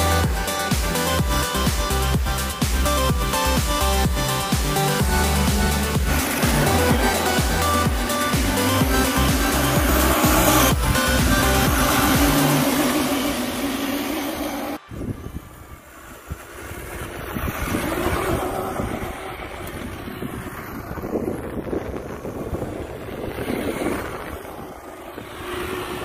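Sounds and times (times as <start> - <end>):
music: 0.0 - 13.4
steady rushing noise: 0.0 - 26.0
wind buffeting microphone: 0.2 - 26.0.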